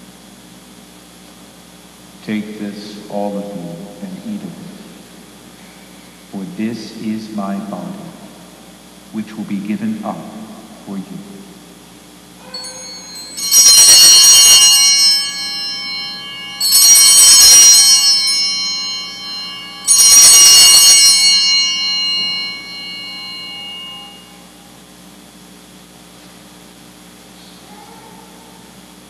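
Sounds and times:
altar bells jangling: 12.4 - 24.5.

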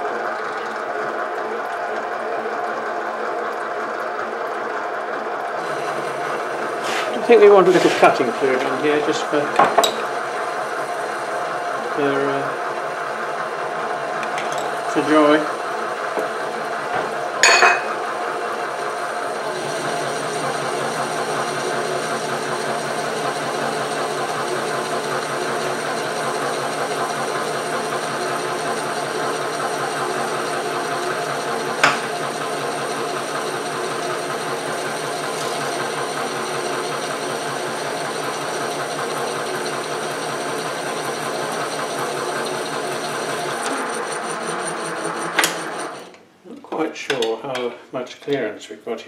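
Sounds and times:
lathe running: 0.0 - 46.2.

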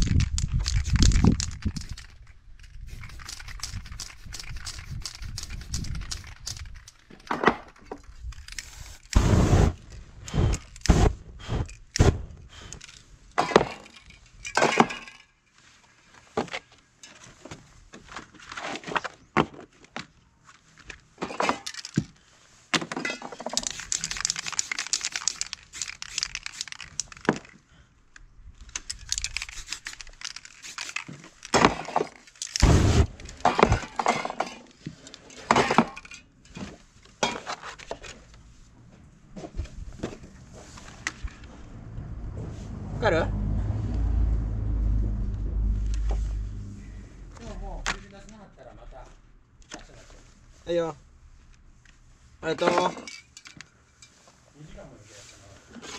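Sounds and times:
spray paint hissing: 2.8 - 6.8, 8.5 - 12.8, 23.6 - 27.0, 29.1 - 31.1
spray cans clinking and knocking: 22.8 - 27.5, 28.9 - 32.6.

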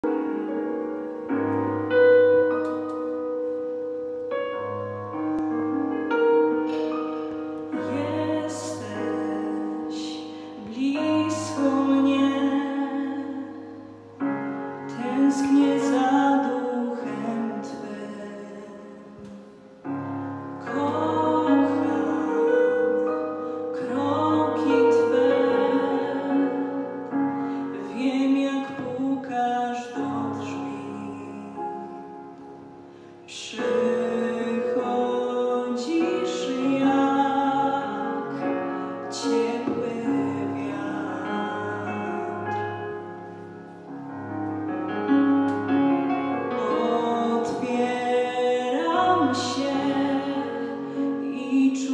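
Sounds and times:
instrumental accompaniment: 0.0 - 51.9
woman singing into a microphone: 7.4 - 32.3, 33.2 - 43.3, 46.4 - 51.9.

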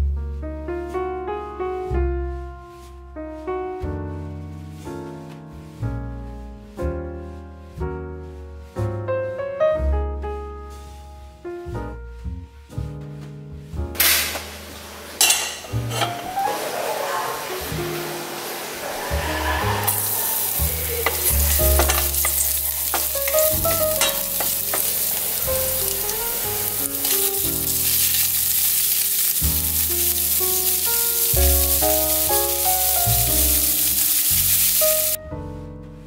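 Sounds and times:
soft piano music: 0.0 - 36.0
oil sizzling in a wok: 14.0 - 35.2
stirring clicks: 19.9 - 33.1.

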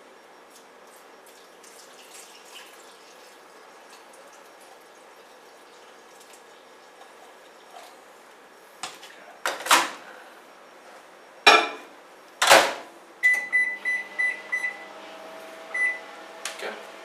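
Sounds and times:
microwave oven humming: 0.0 - 17.0
kitchen clunks and knocks: 11.5 - 12.8
microwave keypad beeps: 13.2 - 14.8, 15.8 - 16.1.

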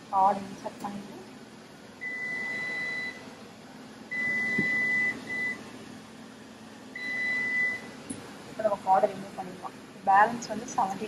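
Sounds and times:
washer control panel beeping: 4.1 - 5.6, 7.0 - 7.8.

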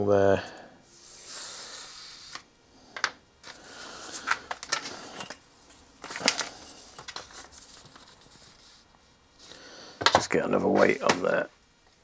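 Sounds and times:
plastic film crinkling: 6.0 - 8.7.

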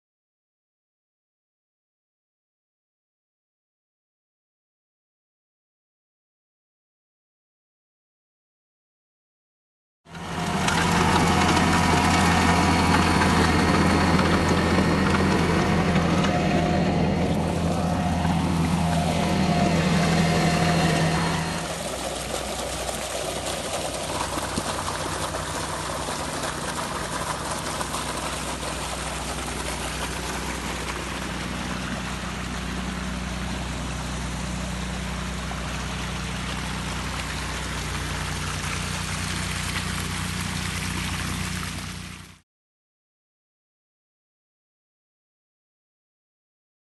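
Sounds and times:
low steady hum: 10.1 - 42.3
tractor engine under load: 10.1 - 42.4
water rushing down channel: 10.1 - 42.4.

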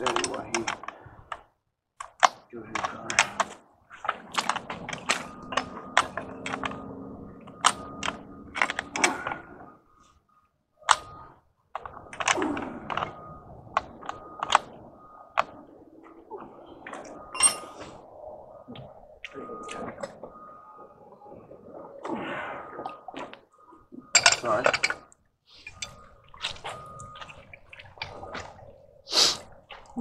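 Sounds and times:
wrenches clicking on steel pipe: 25.6 - 26.0.

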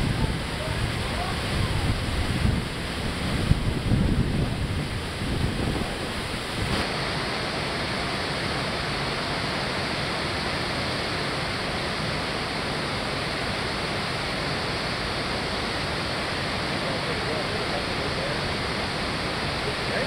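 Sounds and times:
wind rumbling on microphone: 0.0 - 6.8
water rushing over a dam: 0.0 - 20.0.

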